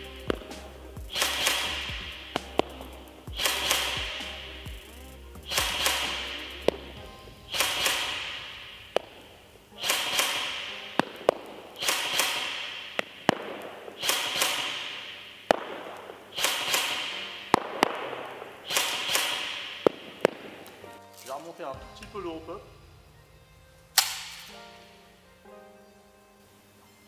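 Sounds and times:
shots echoing in large hall: 0.0 - 25.2
airsoft gun firing single shots: 1.1 - 2.8, 3.4 - 4.5, 5.5 - 6.4, 7.5 - 20.8, 23.9 - 24.9
sharp tap of pellet hitting target: 23.9 - 24.6.

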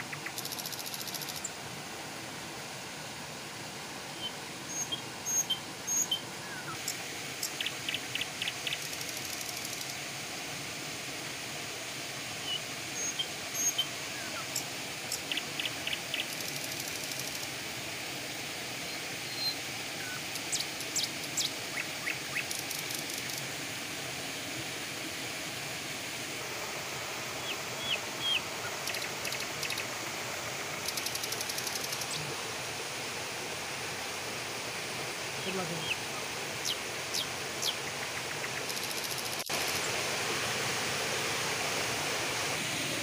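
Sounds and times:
steady rushing hiss: 0.0 - 43.0
small birds chirping: 4.2 - 9.9, 12.5 - 16.5, 18.9 - 23.4, 27.4 - 29.9, 30.8 - 32.4, 35.4 - 39.9.

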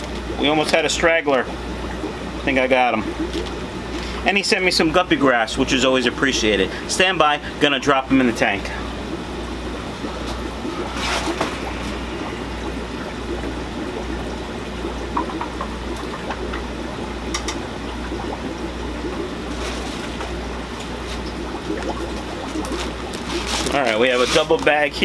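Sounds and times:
water trickling and splashing: 0.0 - 25.0
low hum: 7.3 - 23.9.

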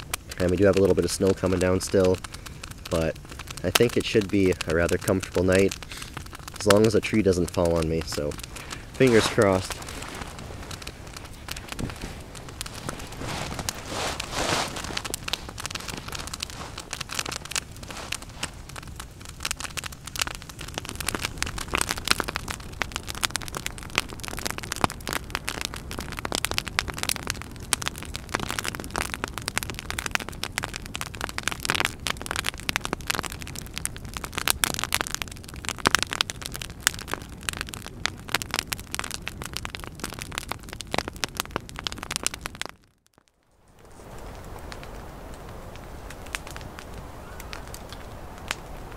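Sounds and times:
campfire crackling and popping: 0.0 - 48.9
gusting wind: 5.2 - 33.4, 43.6 - 48.9.

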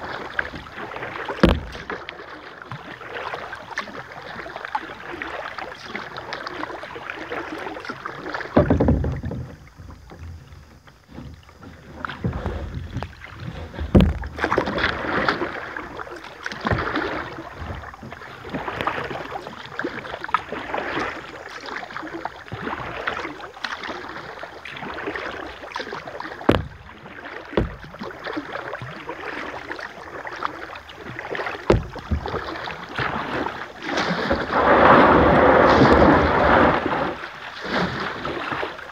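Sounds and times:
paddle splashing in water: 0.0 - 38.9
sharp knocks: 1.4 - 1.9, 26.5 - 26.8, 27.6 - 28.0.

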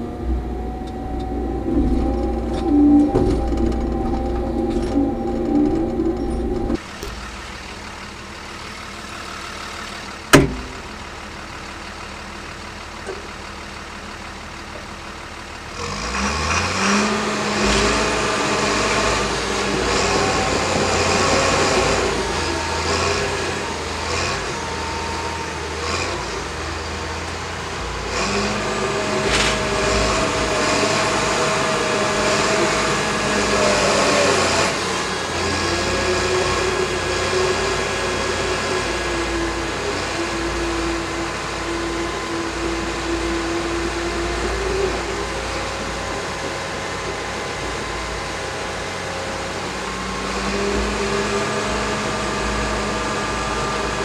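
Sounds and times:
bulldozer diesel engine: 0.0 - 54.0
sharp knock: 10.4 - 10.8.

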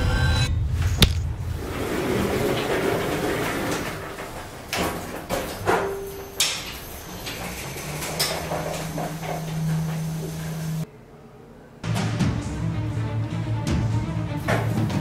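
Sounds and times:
elevator humming: 1.4 - 11.1.

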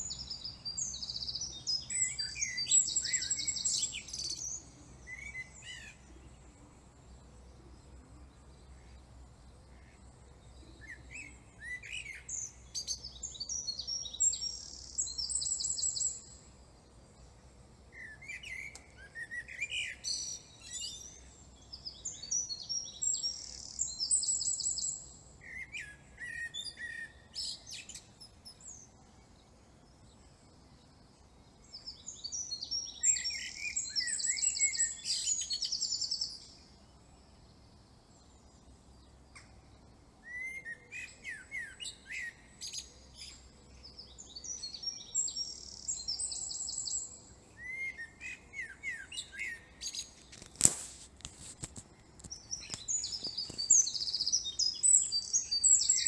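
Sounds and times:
songbird chirps and trills: 0.0 - 56.0.

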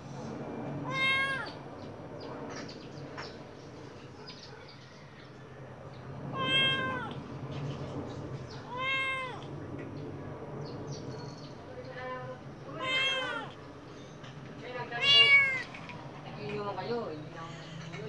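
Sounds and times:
kitten meowing: 0.8 - 1.6, 6.3 - 7.2, 8.6 - 9.5, 12.7 - 13.6, 14.9 - 15.8.

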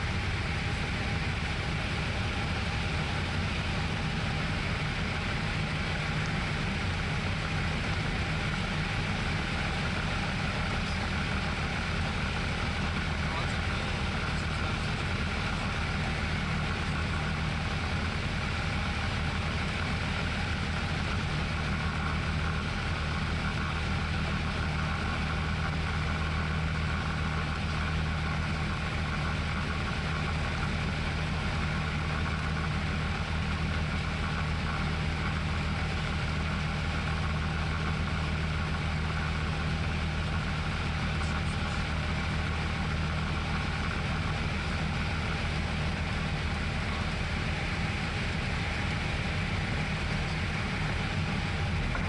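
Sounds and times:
aircraft engine and propeller drone: 0.0 - 52.0.

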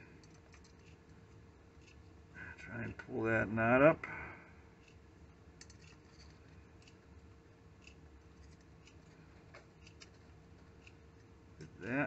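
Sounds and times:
metal file ticking and scraping: 0.0 - 2.3, 4.8 - 11.9
faint steady hum: 0.0 - 12.0.

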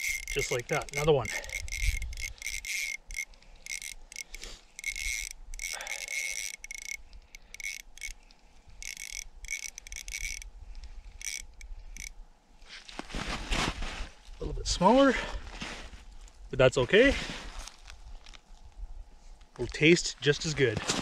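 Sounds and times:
fishing reel gears whirring: 0.0 - 10.5, 11.1 - 12.2.

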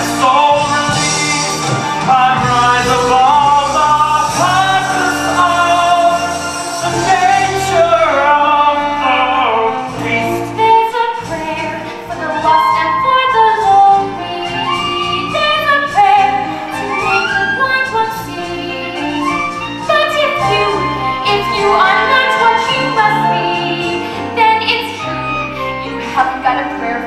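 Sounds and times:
man singing: 0.0 - 10.6
instrumental accompaniment: 0.0 - 27.0
woman singing: 10.0 - 27.0.

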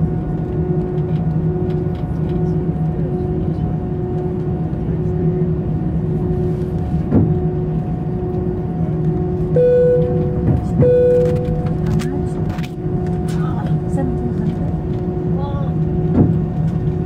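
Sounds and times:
jet engines droning: 0.0 - 17.0
long even tones: 9.6 - 11.9.

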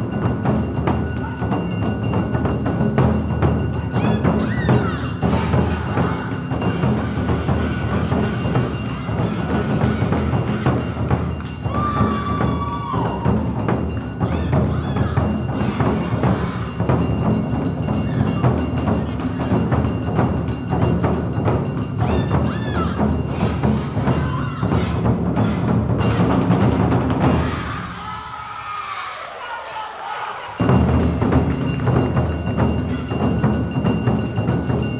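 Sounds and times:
taiko drums: 0.0 - 28.1, 30.6 - 34.9.

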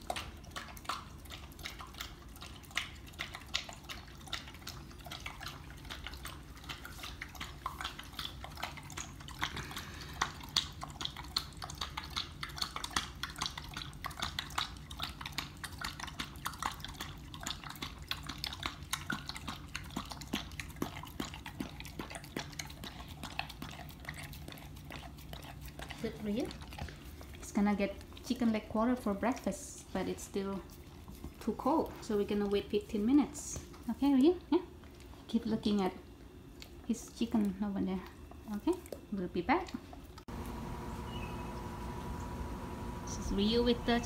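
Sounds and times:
dog lapping milk: 0.0 - 34.0.

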